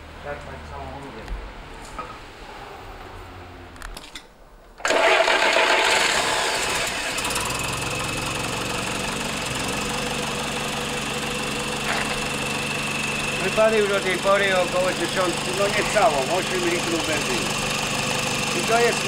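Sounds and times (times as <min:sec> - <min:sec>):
petrol engine starting and idling: 0:04.8 - 0:19.0.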